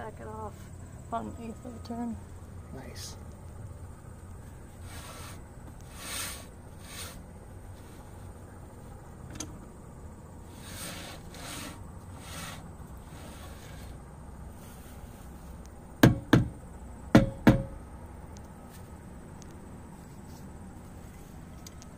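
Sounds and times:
rasping metal scrapes: 0:04.8 - 0:07.2, 0:10.5 - 0:14.0.

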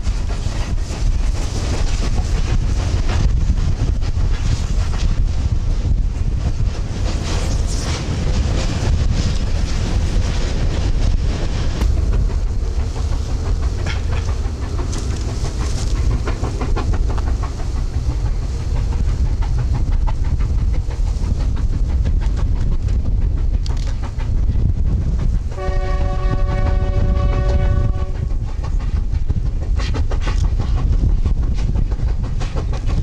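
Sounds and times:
steam locomotive rumbling: 0:00.0 - 0:33.0
wheels clattering over rail joints: 0:00.0 - 0:33.0
steam whistle: 0:25.5 - 0:28.3.

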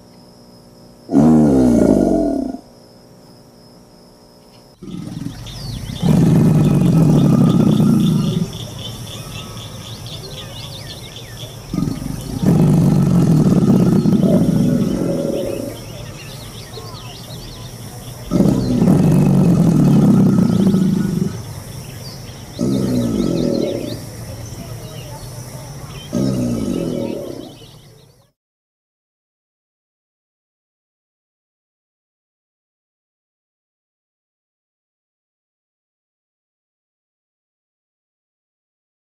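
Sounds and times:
alligator bellowing: 0:01.1 - 0:02.6, 0:04.8 - 0:28.0
faint high chirping: 0:04.4 - 0:28.3.

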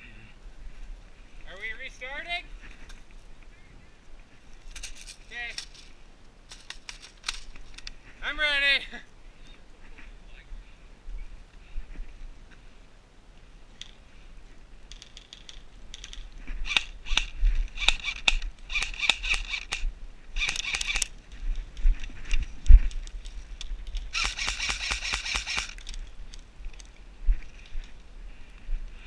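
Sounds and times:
airsoft guns firing bursts: 0:16.7 - 0:19.8, 0:20.4 - 0:21.1, 0:24.1 - 0:25.8.

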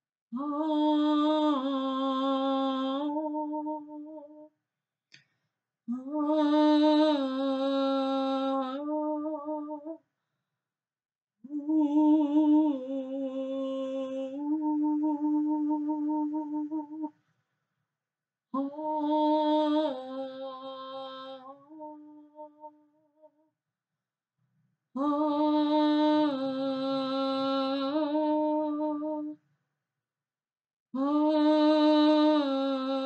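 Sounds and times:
woman singing wordless held notes: 0:00.4 - 0:04.5, 0:05.9 - 0:10.0, 0:11.4 - 0:17.2, 0:18.6 - 0:22.8, 0:25.0 - 0:29.4, 0:31.0 - 0:33.0.

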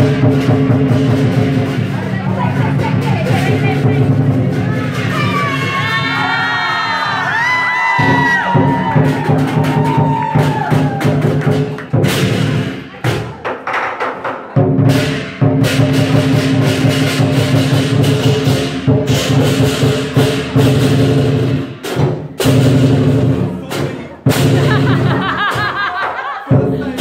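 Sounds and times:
drum cymbals and gong beat: 0:00.0 - 0:05.4, 0:14.8 - 0:25.7.

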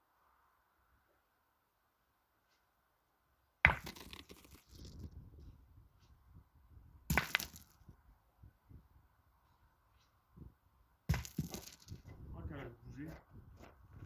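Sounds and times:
ball rolling on gravel: 0:03.6 - 0:05.6, 0:07.0 - 0:08.0, 0:10.4 - 0:14.0.

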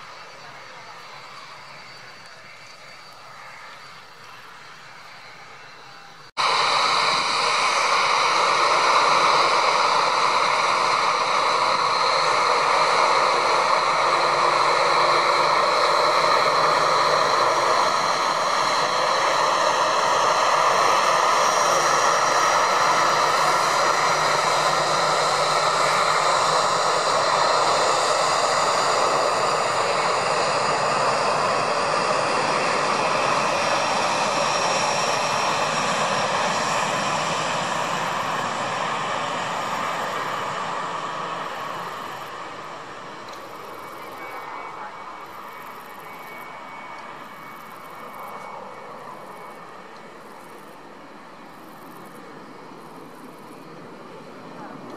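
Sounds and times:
jet engines rushing with turbine whine: 0:00.0 - 0:54.9.

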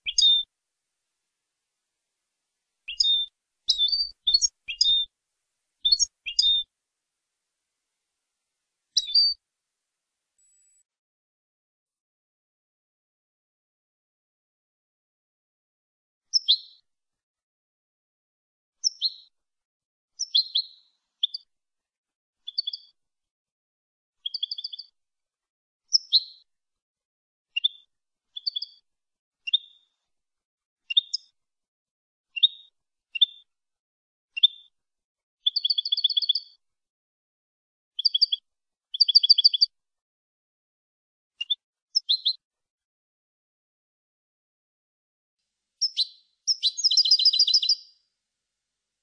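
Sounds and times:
goldfinch twittering song: 0:00.0 - 0:00.5, 0:02.9 - 0:05.1, 0:05.8 - 0:06.7, 0:09.0 - 0:09.4, 0:20.2 - 0:21.4, 0:24.3 - 0:24.9, 0:28.4 - 0:28.8, 0:35.5 - 0:36.6, 0:38.0 - 0:38.4, 0:39.0 - 0:39.7, 0:45.8 - 0:47.9.

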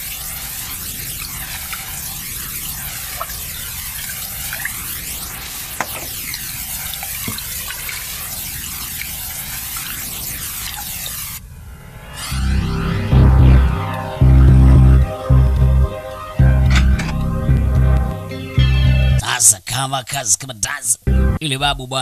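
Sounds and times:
drip-like ticks: 0:00.0 - 0:10.0
hiss with swirling sweep: 0:00.0 - 0:14.4.

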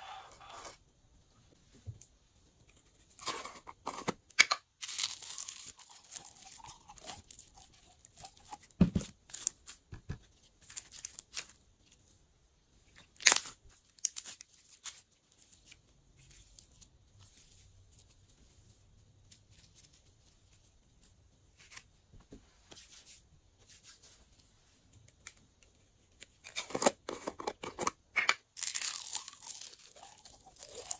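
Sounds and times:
slime tearing and scraping: 0:28.6 - 0:30.9.

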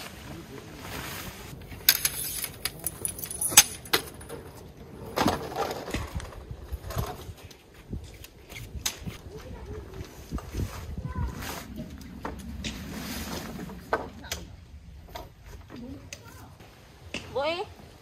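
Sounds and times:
tent fabric rustling: 0:00.0 - 0:01.8
tent poles clacking on wood: 0:01.6 - 0:04.4.

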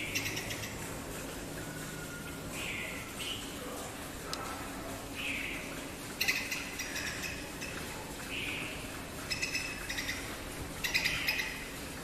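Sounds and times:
bird chattering calls: 0:00.0 - 0:00.8, 0:05.2 - 0:11.7.

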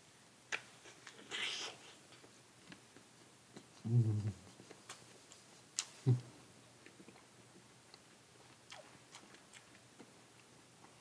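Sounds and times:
person humming: 0:03.8 - 0:04.5, 0:06.0 - 0:06.3.

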